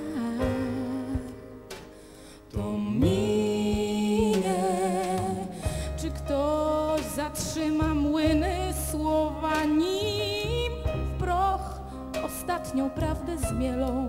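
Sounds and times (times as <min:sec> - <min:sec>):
woman singing with vibrato: 0:00.0 - 0:01.7, 0:02.5 - 0:14.0
deep double bass notes: 0:00.0 - 0:14.0.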